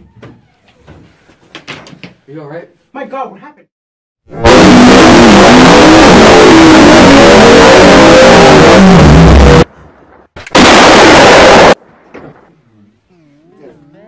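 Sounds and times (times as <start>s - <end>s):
distorted blast of noise: 4.3s - 12.5s.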